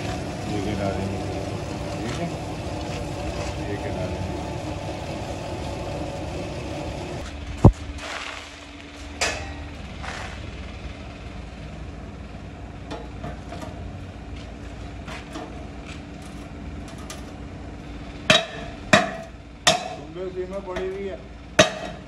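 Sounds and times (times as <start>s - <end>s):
steady low hum: 0.0s - 22.0s
hammer striking metal: 9.2s - 9.7s, 18.3s - 20.1s, 21.6s - 22.0s.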